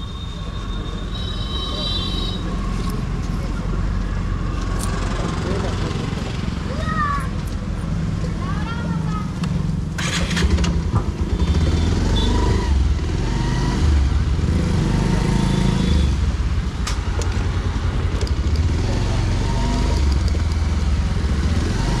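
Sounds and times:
motorcycle engine pulling away: 0:10.0 - 0:14.0.

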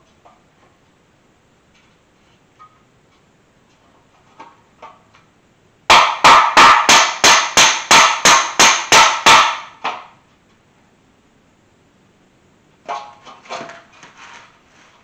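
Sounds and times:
hammer blows on metal: 0:05.9 - 0:10.1.

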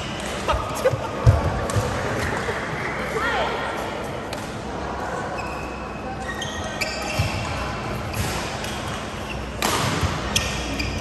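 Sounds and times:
shoes squeaking on court: 0:05.3 - 0:11.0
racket hitting shuttlecock: 0:08.1 - 0:10.8.

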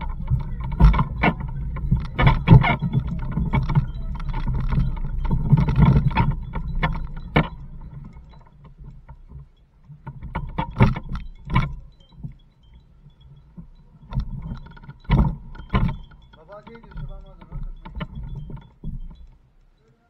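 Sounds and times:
bicycle trailer rumbling over ground: 0:00.0 - 0:08.5, 0:13.6 - 0:19.1
trailer frame knocking and rattling: 0:00.0 - 0:08.5.

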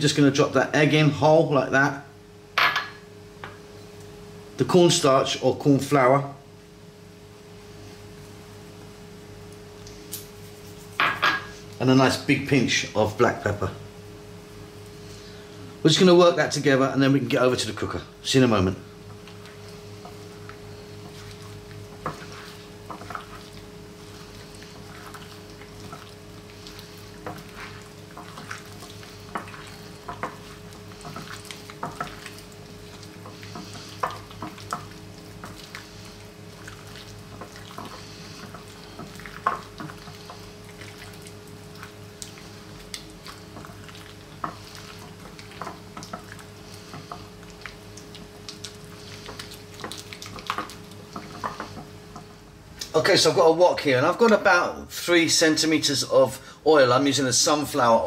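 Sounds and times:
steady low hum: 0:00.0 - 0:58.0
wet squelches in a bowl: 0:19.1 - 0:53.1.

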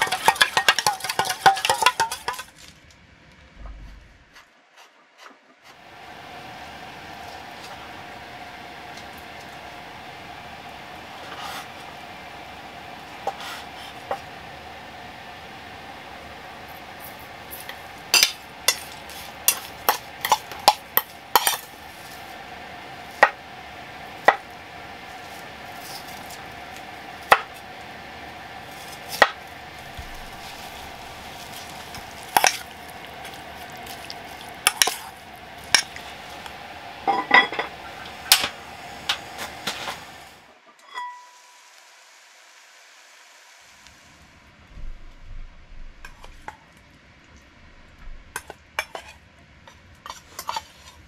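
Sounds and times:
spoon clinking metal bowl: 0:00.0 - 0:02.5, 0:40.8 - 0:41.4
steady hum: 0:00.0 - 0:51.0.

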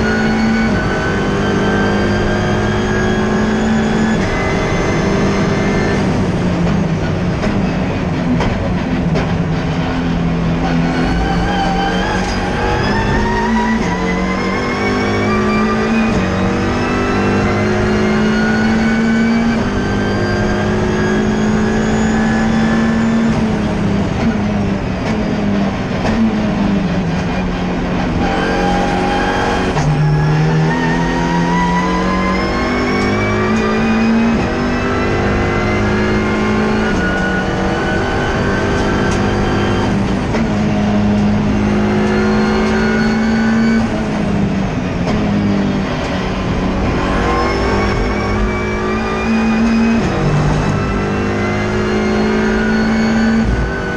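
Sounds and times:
race car engine accelerating: 0:00.0 - 0:53.9.

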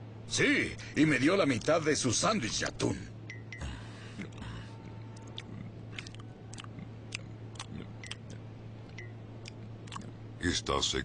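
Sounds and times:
steady low hum: 0:00.0 - 0:11.0
person chewing with wet smacking: 0:04.2 - 0:10.2.

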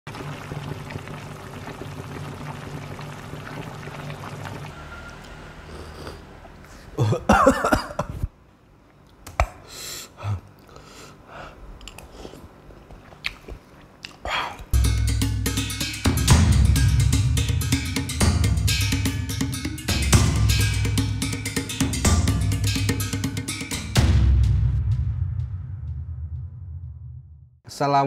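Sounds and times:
blowing on hot broth: 0:00.2 - 0:06.6
slurping: 0:03.4 - 0:06.8
chewing: 0:11.8 - 0:14.7.

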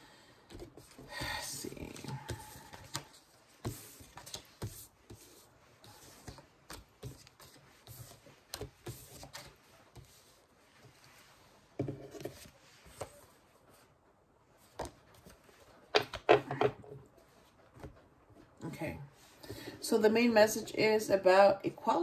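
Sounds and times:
cards tapping and sliding: 0:00.5 - 0:10.3.

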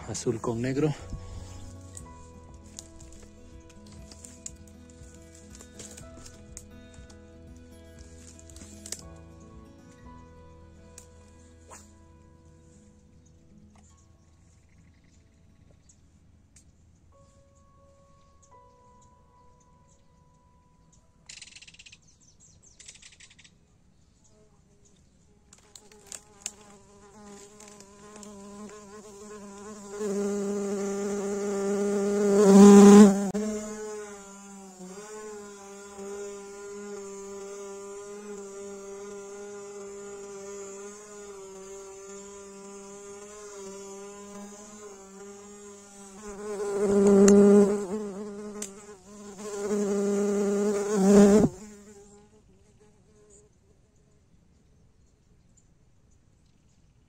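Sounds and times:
flying insect buzzing: 0:25.6 - 0:53.5.

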